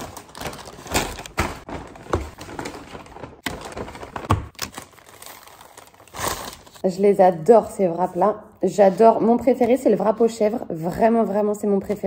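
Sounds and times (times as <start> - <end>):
paper rustling and crinkling: 0.0 - 6.8.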